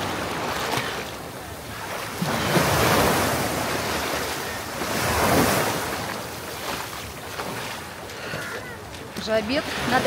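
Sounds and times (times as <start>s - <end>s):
ocean surf washing in: 0.0s - 7.9s.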